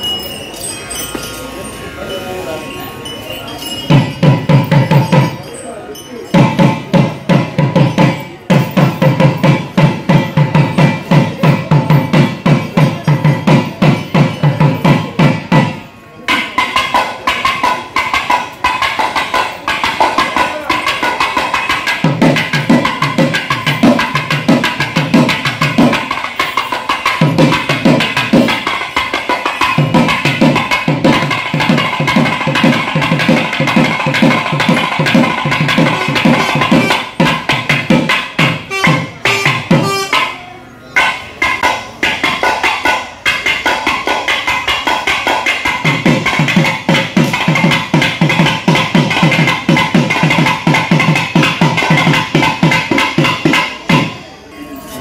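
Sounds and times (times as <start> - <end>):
fast drum strokes: 3.9 - 5.4, 6.3 - 40.4, 41.0 - 54.2
steady high tone: 54.1 - 55.0.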